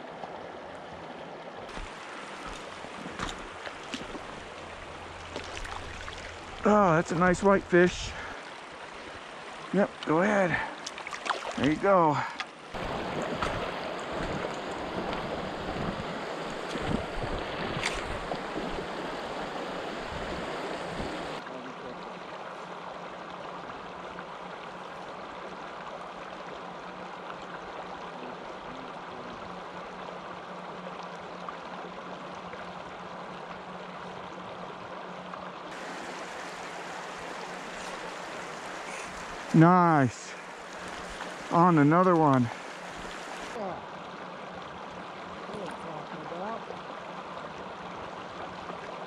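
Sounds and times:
water rushing over cobbles: 1.7s - 21.5s, 35.7s - 44.0s.

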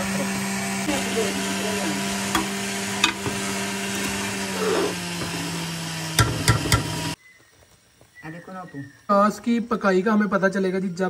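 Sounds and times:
steady motor hum with hiss: 0.0s - 3.3s, 3.9s - 5.4s.

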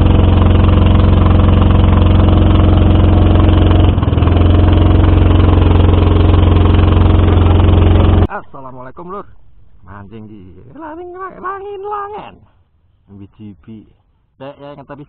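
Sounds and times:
boat engine running: 0.0s - 8.3s.

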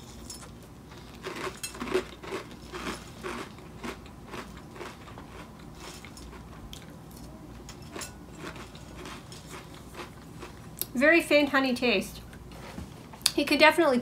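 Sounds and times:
chewing crunchy cereal: 0.0s - 10.9s.

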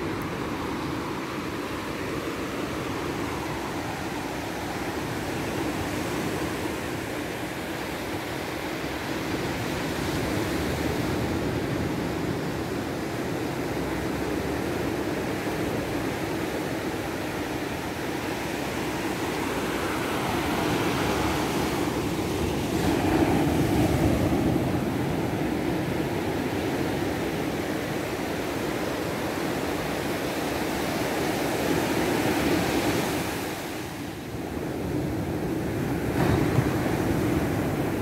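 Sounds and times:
surf breaking on beach: 14.6s - 38.0s.

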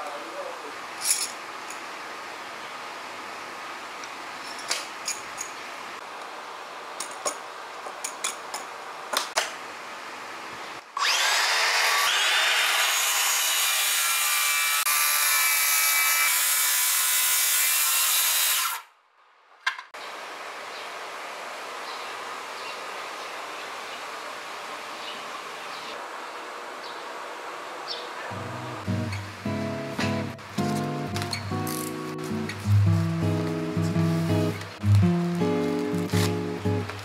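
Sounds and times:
circular saw cutting wood: 11.0s - 18.9s.

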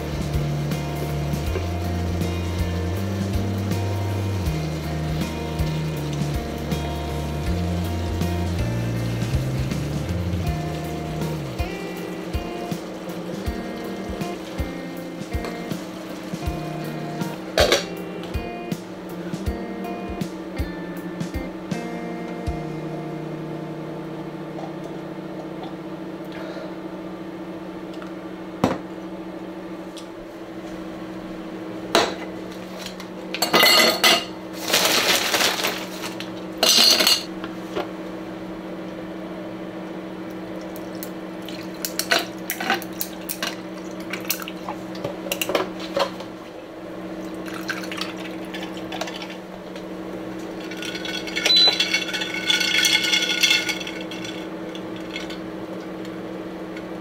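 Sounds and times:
steady low hum: 0.0s - 57.0s
dishes clinking and clattering: 17.6s - 17.9s, 33.4s - 37.3s, 41.6s - 46.3s, 50.6s - 55.4s.

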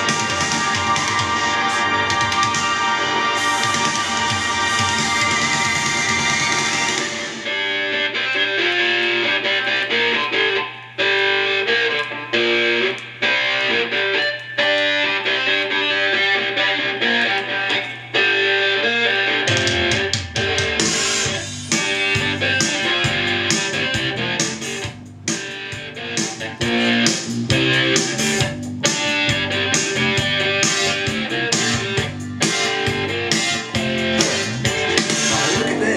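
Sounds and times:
bass and drums: 0.0s - 7.7s, 19.5s - 35.9s
guitar music: 0.0s - 35.9s.

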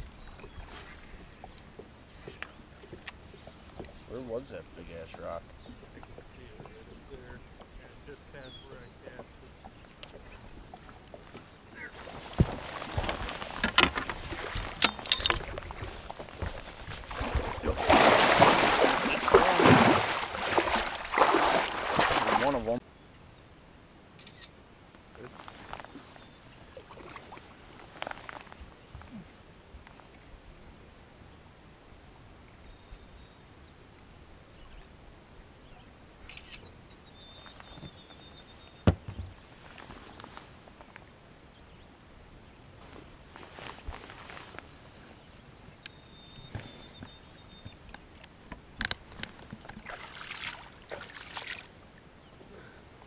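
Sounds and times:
fish thrashing and splashing: 12.0s - 22.7s.

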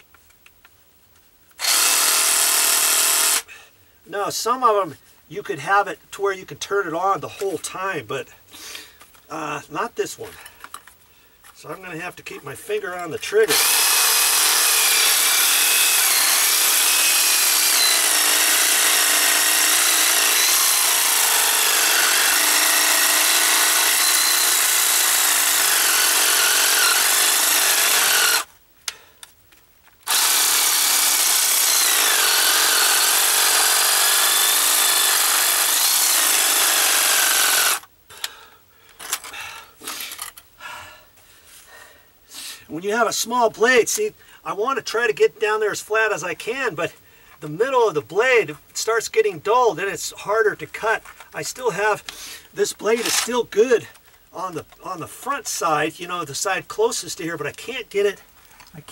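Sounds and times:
reciprocating saw cutting metal: 1.6s - 3.4s, 13.5s - 28.5s, 30.1s - 37.8s.

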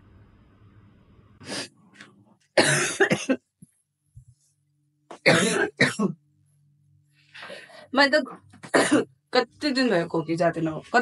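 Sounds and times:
woman coughing: 2.6s - 3.5s, 5.2s - 6.2s, 8.6s - 9.2s.

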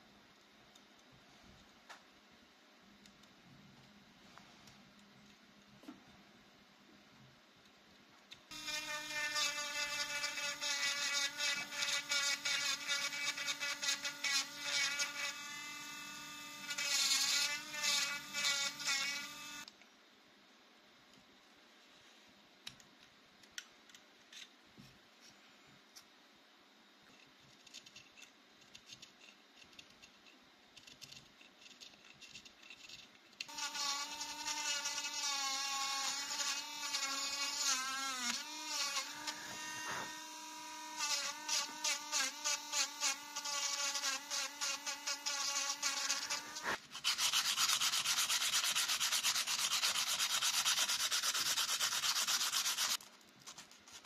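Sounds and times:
pointed tool scratching wood: 43.6s - 54.0s
sandpaper rubbing wood: 46.1s - 54.0s.

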